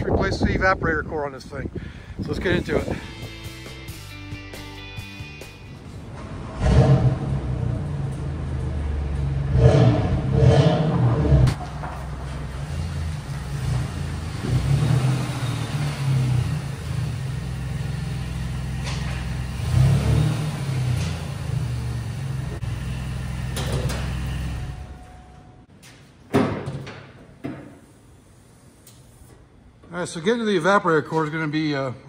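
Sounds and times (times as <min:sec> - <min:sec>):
car engine revving: 0:06.1 - 0:25.0.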